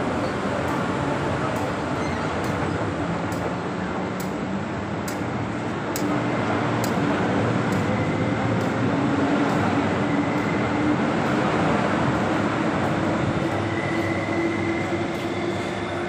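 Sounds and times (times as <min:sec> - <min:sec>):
electric train rumbling at platform: 0:00.0 - 0:16.0
faint light ticks: 0:04.2 - 0:04.4, 0:05.0 - 0:05.2.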